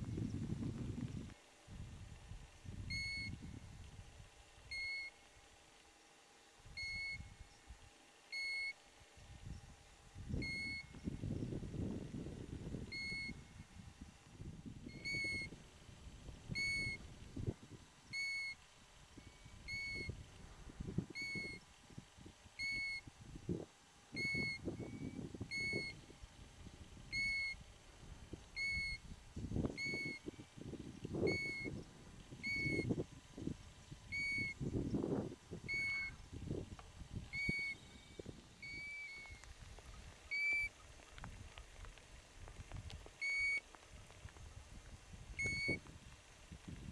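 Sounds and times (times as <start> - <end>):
wind noise on microphone: 0.0 - 5.0, 6.6 - 7.9, 8.5 - 46.9
plover whistled call: 14.9 - 15.5, 16.6 - 17.0, 18.1 - 18.6, 19.2 - 20.1, 21.2 - 21.6, 22.6 - 23.0, 24.1 - 26.0, 27.1 - 27.6, 28.6 - 29.0, 29.8 - 30.4, 31.2 - 31.8, 32.4 - 32.9, 34.1 - 34.8, 35.6 - 36.3, 37.2 - 39.5, 40.3 - 40.9, 43.2 - 43.6.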